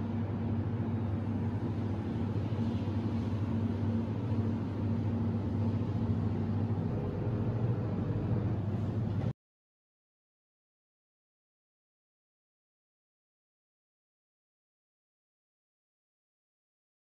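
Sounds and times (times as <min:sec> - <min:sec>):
machinery humming: 0:00.0 - 0:09.3.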